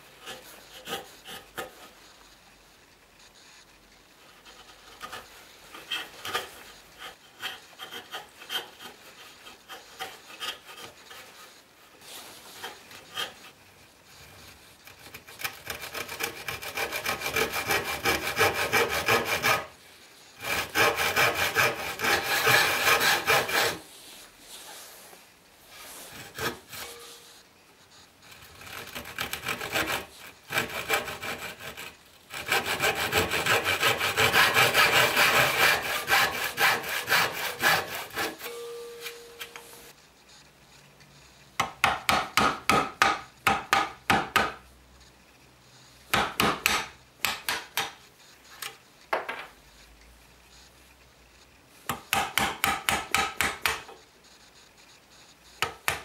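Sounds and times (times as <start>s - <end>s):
chisel scraping wood: 0.1s - 2.1s, 4.2s - 19.7s, 20.4s - 24.9s, 25.7s - 38.5s
handsaw cutting wood: 4.5s - 11.3s, 14.8s - 19.7s, 20.4s - 23.8s, 26.1s - 27.0s, 28.4s - 38.5s.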